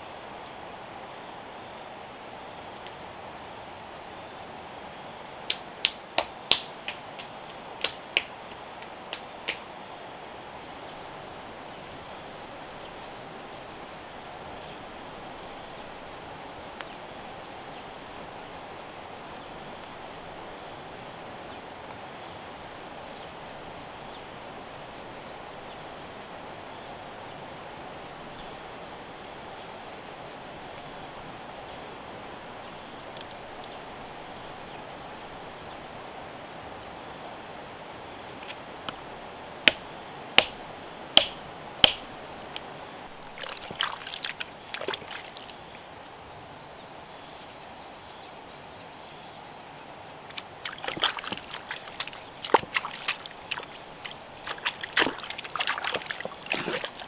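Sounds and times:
insects chirring: 0.0 - 57.0
sharp knocks: 40.4 - 40.6.

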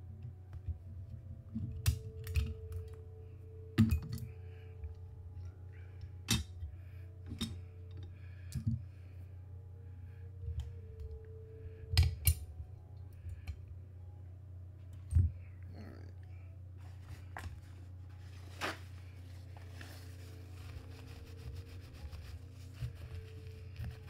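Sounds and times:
soft background music: 0.0 - 24.0
steady low hum: 0.0 - 24.0
clicks of small metal parts: 11.9 - 12.5.

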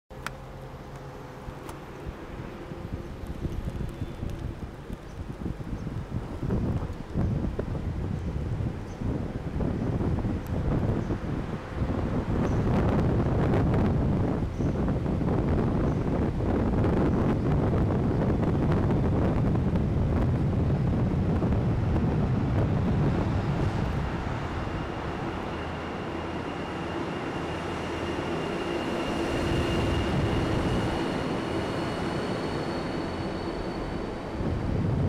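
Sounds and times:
wind on microphone: 2.0 - 26.5, 28.8 - 32.8, 33.6 - 35.0
faint high whine: 22.8 - 35.0.

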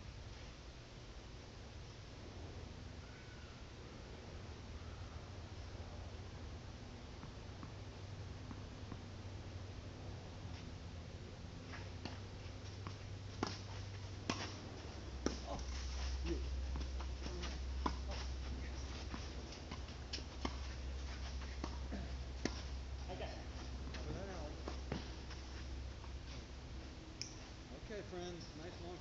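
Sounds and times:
steady low hum: 0.0 - 29.0
tennis balls struck by rackets: 11.7 - 22.9.

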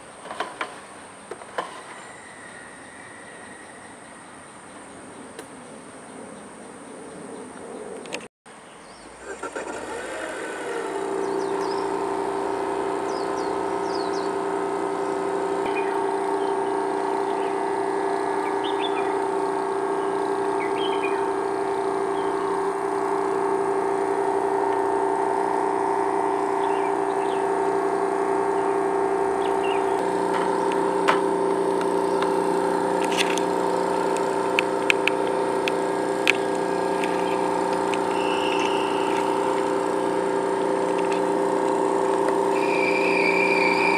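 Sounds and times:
generator running with high whine: 0.0 - 43.9
plugs clicking into outlets: 33.0 - 39.7.

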